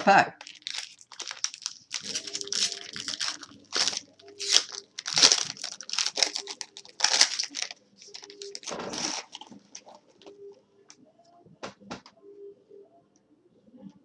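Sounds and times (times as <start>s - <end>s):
foil wrapper crinkling: 0.4s - 10.4s.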